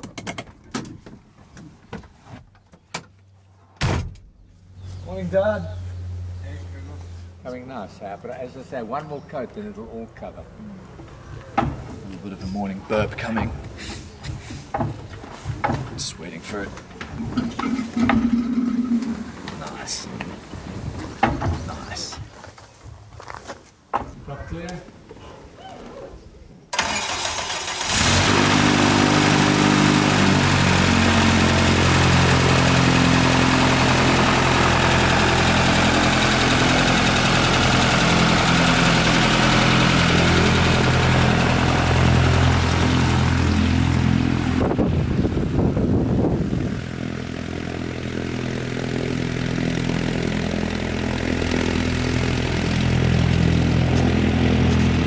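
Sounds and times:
microlight engine running: 26.8 - 55.0.

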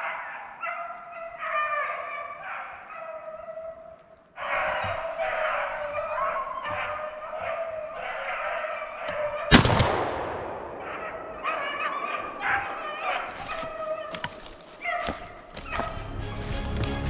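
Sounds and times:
hunting dogs baying: 0.0 - 9.5, 10.6 - 16.5
gunshot: 9.5 - 10.9.

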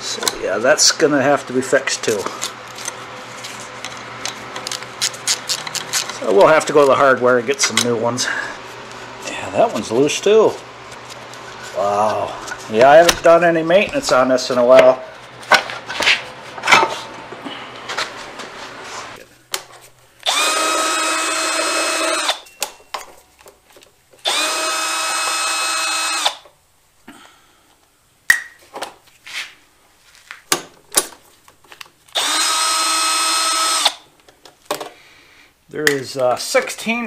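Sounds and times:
cordless drill whining: 20.2 - 22.4, 24.2 - 26.5, 32.1 - 34.0.

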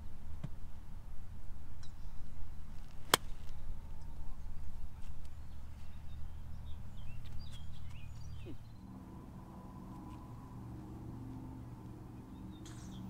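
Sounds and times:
bird chirps: 5.3 - 8.9, 12.2 - 13.0.

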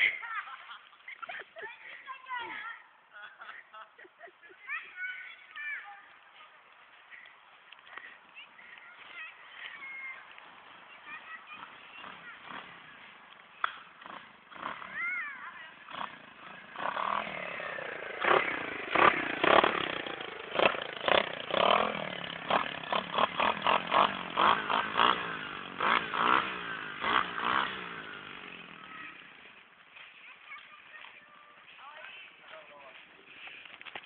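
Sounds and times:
dirt bike engine revving: 11.4 - 29.7.

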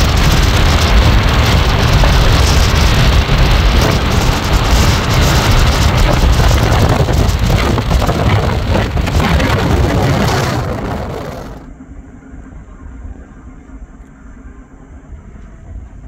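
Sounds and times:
wind buffeting microphone: 0.0 - 11.7.

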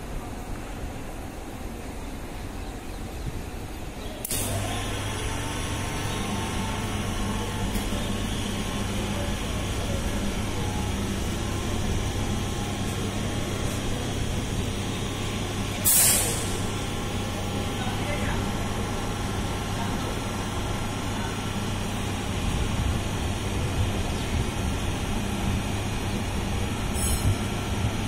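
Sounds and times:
electric train humming: 0.0 - 28.0
short loud hiss: 15.8 - 16.6.

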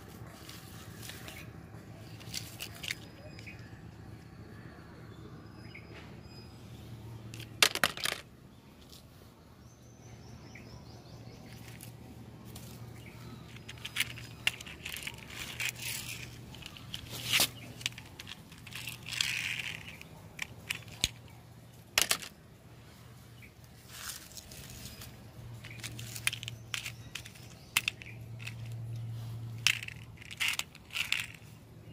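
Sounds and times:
dry debris crackling and rustling: 0.0 - 3.7, 11.4 - 23.0, 23.6 - 31.6
steady low hum: 0.0 - 31.9
plastic toys clicking and knocking: 2.0 - 3.6, 7.3 - 8.3, 13.4 - 22.4, 25.6 - 29.0, 29.6 - 31.6.

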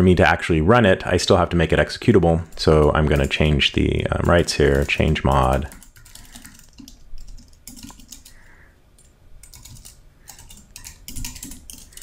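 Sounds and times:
typing on computer keyboard: 4.2 - 8.4, 9.0 - 12.0.

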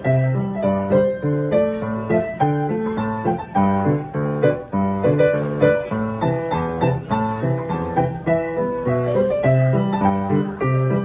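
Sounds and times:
solo piano song: 0.0 - 11.0.

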